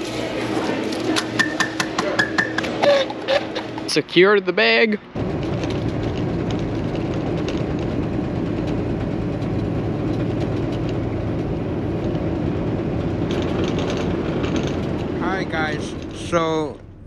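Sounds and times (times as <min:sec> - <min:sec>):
diesel truck engine rumbling: 0:05.0 - 0:17.0.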